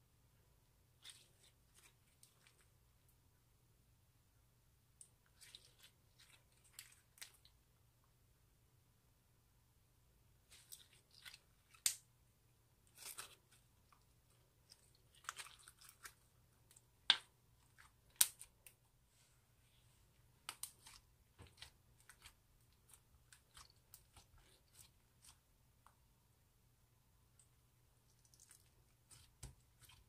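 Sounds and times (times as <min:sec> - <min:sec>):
slime crackling and popping: 0:18.1 - 0:18.6.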